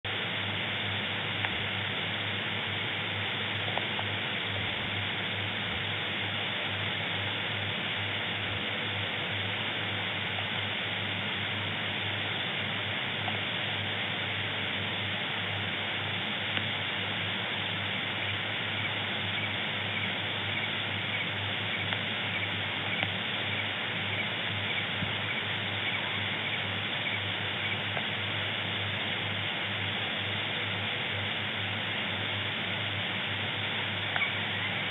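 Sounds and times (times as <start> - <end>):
low electrical hum: 0.0 - 34.9
microphone hiss: 0.0 - 34.9
faint ticks: 1.4 - 1.6, 16.5 - 16.7, 18.8 - 28.1, 34.0 - 34.4.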